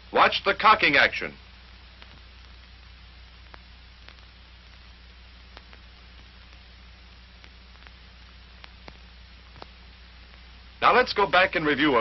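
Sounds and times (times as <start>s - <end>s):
film soundtrack hiss: 0.0s - 12.0s
faint clicks: 1.9s - 10.5s.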